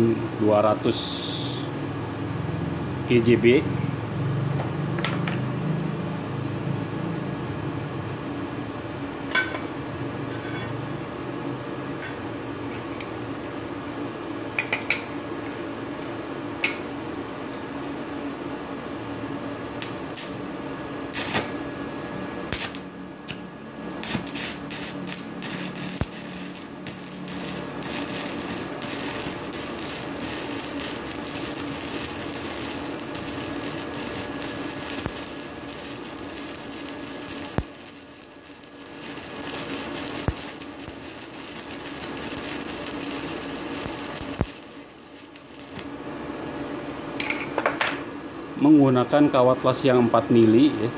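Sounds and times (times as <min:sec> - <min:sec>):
welding arc sharp snaps: 0:19.8 - 0:20.4, 0:21.1 - 0:21.6, 0:22.5 - 0:45.9
welding arc crackling: 0:19.8 - 0:20.5, 0:21.1 - 0:21.6, 0:22.4 - 0:46.1.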